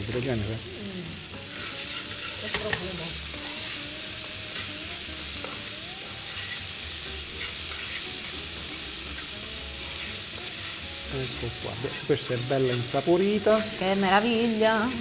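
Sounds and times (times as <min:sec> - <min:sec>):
vegetables sizzling in oil: 0:00.0 - 0:15.0
metal tongs stirring: 0:01.6 - 0:03.8, 0:07.4 - 0:08.4, 0:09.9 - 0:14.2.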